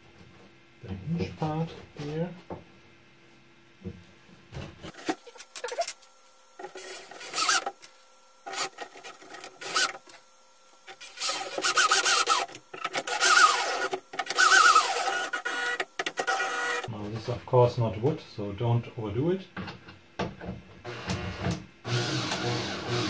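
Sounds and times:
screw grating and squeaking: 6.6 - 7.7, 8.5 - 10.0, 11.2 - 16.8.

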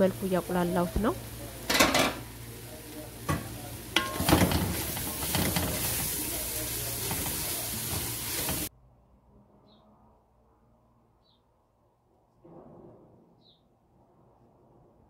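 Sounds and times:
onions sizzling in a metal pot: 0.0 - 8.7.

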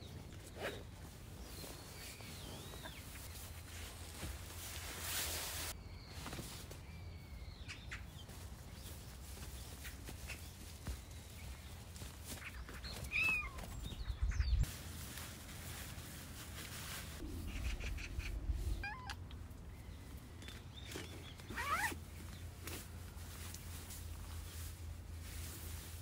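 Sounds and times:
dull low bumps: 17.2 - 20.9
cat meowing: 17.8 - 19.3.

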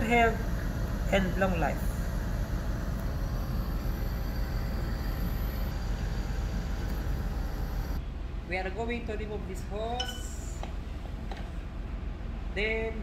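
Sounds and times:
machine running: 0.0 - 8.0
low rumble: 0.0 - 8.4.

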